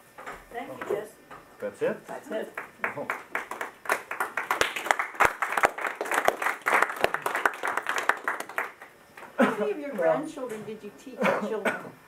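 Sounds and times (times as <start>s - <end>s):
people clapping: 2.5s - 9.0s.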